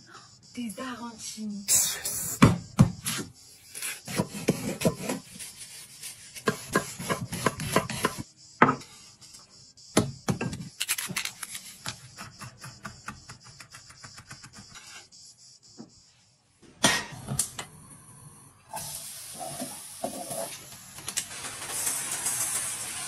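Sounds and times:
knife chopping on wooden board: 6.4 - 8.8.

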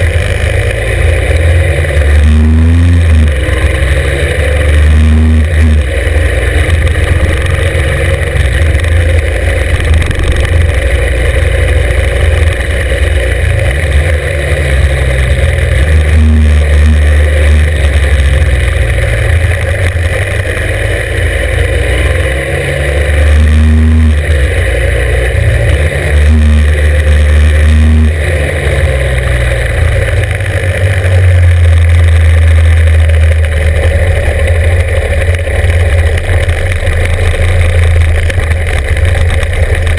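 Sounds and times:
motorcycle engine running hard: 0.0 - 39.9
steady rush of noise: 0.0 - 39.9.

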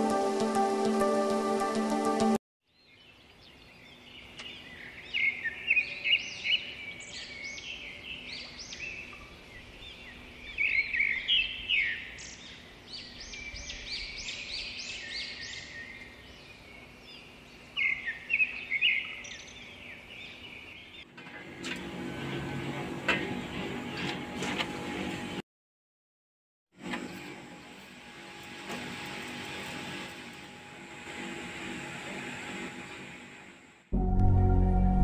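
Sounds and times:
birds chirping: 2.8 - 21.1.

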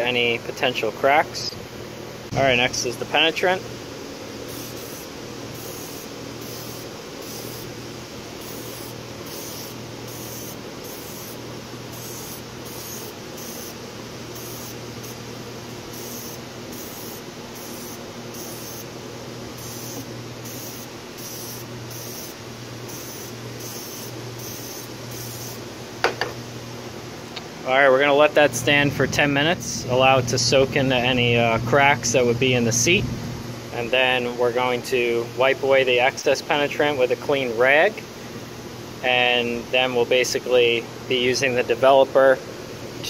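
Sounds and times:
aerosol can spray hissing: 4.5 - 7.8, 8.4 - 15.2, 15.9 - 18.9, 19.6 - 25.6.

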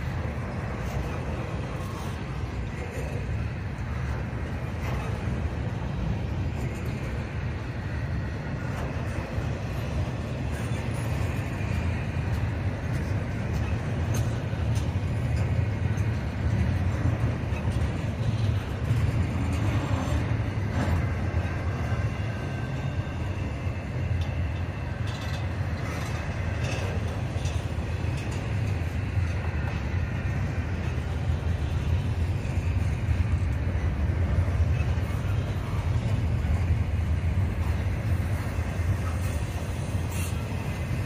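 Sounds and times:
train wheels rumbling on rails: 0.0 - 41.0
faint clicks and squeaks: 23.8 - 31.1.

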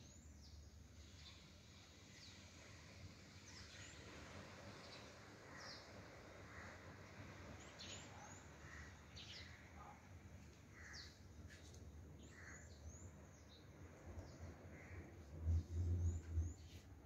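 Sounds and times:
low background rumble: 12.2 - 17.0.

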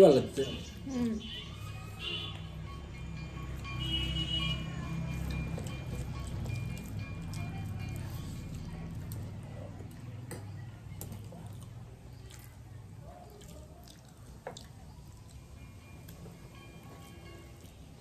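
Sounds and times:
wet eating sounds: 5.2 - 15.6.

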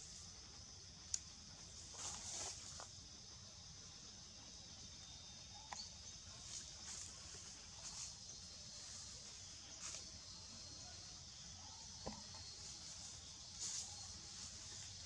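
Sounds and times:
steady high hiss: 0.0 - 5.6, 12.5 - 15.0.

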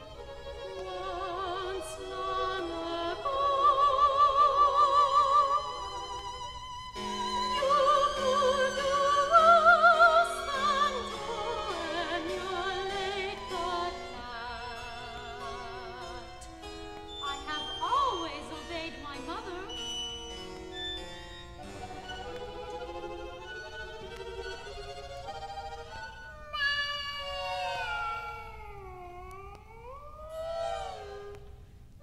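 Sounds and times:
soprano singing: 0.0 - 20.8
strings and harpsichord ensemble: 0.0 - 28.0.

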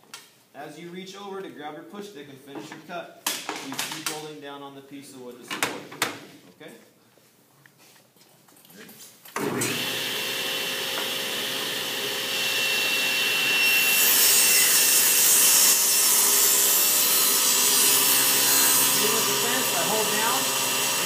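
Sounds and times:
saw cutting board: 9.4 - 21.0
table saw running: 9.4 - 21.0.

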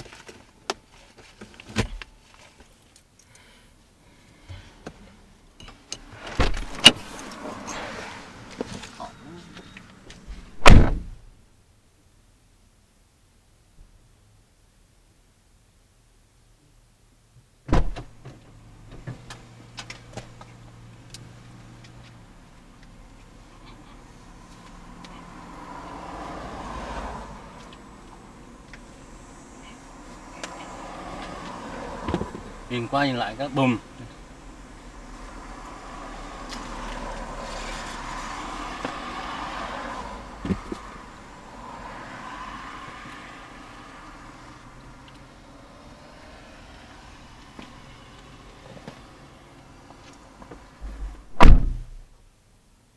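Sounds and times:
car driving by: 6.0 - 11.0, 23.6 - 49.9
car door shutting: 6.1 - 9.0, 9.6 - 11.2, 17.7 - 19.3, 50.8 - 52.0.

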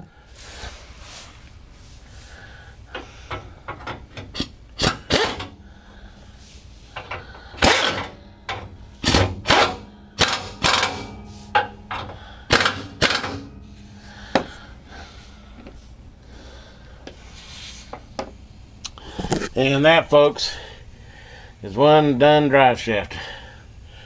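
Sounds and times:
wrench clicking on bolts: 7.0 - 13.5.

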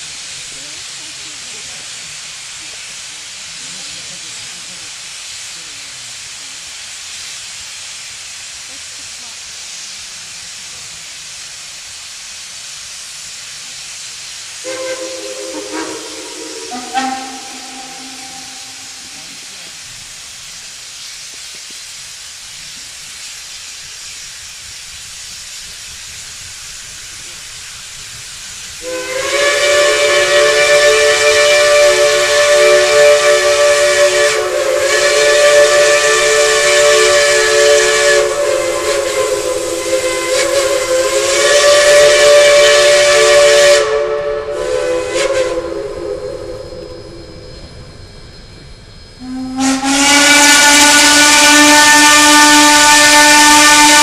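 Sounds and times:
steady hiss: 0.0 - 54.0
steam locomotive whistles: 14.0 - 20.1, 28.6 - 54.0.

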